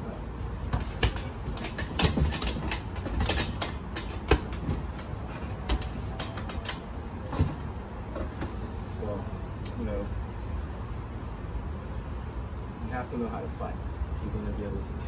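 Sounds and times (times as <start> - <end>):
irregular clicks and knocks: 0.4 - 8.6.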